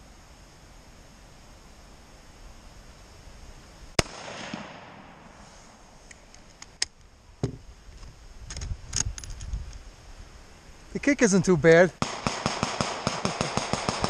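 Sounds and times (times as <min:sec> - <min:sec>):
rifle shot with echo: 0:04.0 - 0:05.4, 0:12.0 - 0:14.0.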